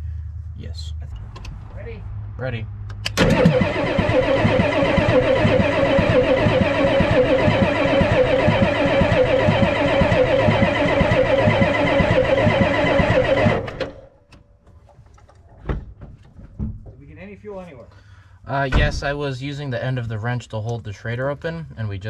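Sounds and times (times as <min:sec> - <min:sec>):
diesel engine cranking by starter: 0:02.9 - 0:14.2.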